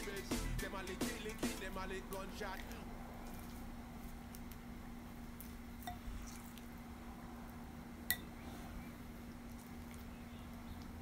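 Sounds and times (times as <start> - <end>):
steady low hum: 0.0 - 11.0
wet squishing of hands in paste: 9.2 - 11.0.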